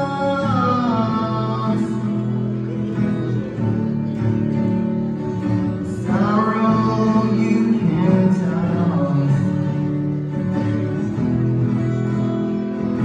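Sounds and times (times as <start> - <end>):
man singing: 0.0 - 3.4, 5.5 - 12.0
acoustic guitars: 0.0 - 13.0.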